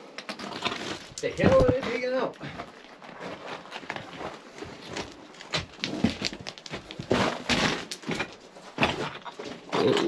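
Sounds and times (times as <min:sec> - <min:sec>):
footsteps scrambling on loose rock: 0:00.3 - 0:10.0.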